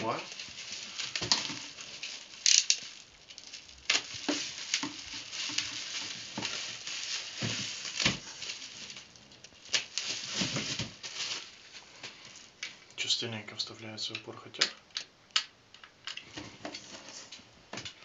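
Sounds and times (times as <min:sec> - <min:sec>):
bubble wrap crinkling: 0:00.0 - 0:13.1.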